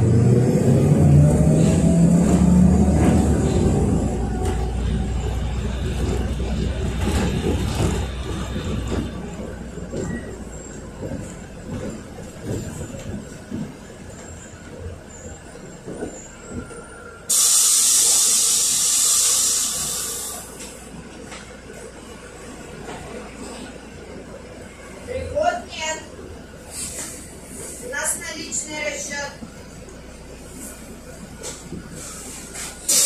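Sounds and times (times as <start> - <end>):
bus engine rumble: 0.0 - 33.0
interior rattles and knocks: 1.8 - 17.0
compressed air hiss: 17.3 - 20.6, 32.0 - 33.0.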